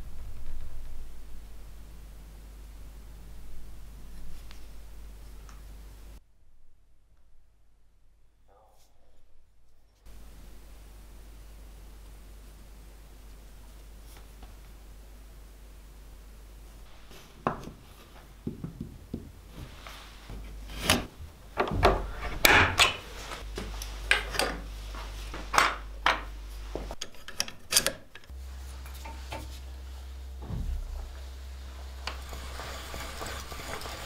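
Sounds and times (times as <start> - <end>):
wood and tools knocking on workbench: 18.4 - 19.7.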